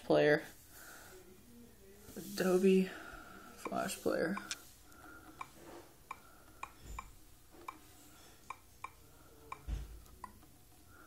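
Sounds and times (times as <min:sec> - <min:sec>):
faint key-press clicks: 0:08.4 - 0:10.5.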